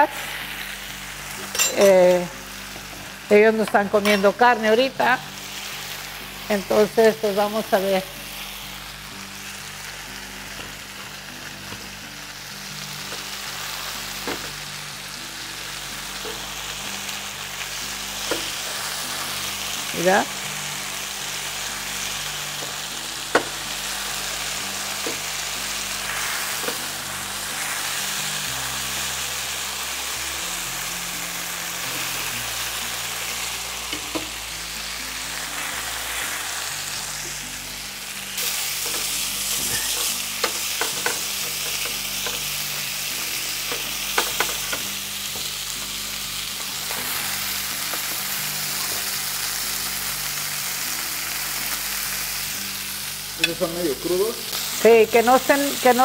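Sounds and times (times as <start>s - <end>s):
chicken sizzling in a pan: 0.0s - 56.0s
utensils clicking against pan: 33.9s - 34.3s, 38.4s - 42.5s, 43.6s - 45.5s.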